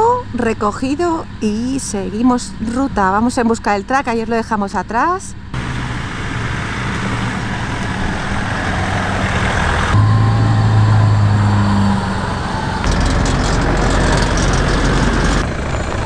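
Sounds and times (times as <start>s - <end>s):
vehicle engine low hum: 0.0s - 16.0s
tyre and road noise: 5.3s - 16.0s.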